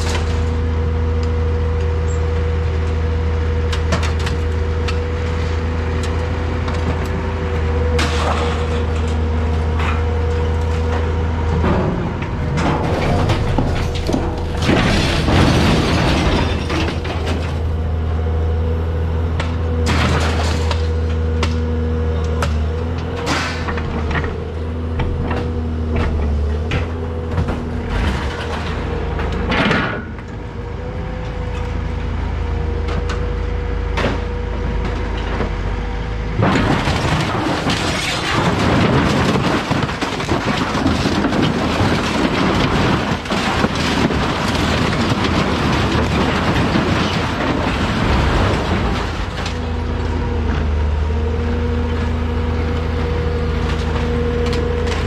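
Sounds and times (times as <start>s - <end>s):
machine engine and hydraulics drone: 0.0s - 55.0s
scrap metal clanks and knocks: 7.9s - 17.8s, 22.4s - 30.4s, 36.4s - 50.7s.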